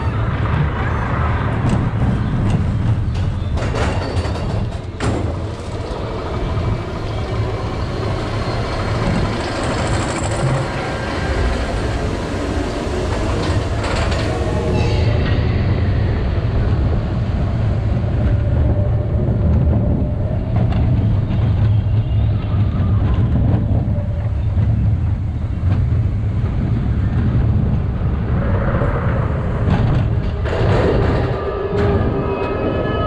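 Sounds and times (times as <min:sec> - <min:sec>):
roller coaster wheels rumbling on rails: 0:00.0 - 0:33.0
mechanical whine: 0:04.8 - 0:23.5.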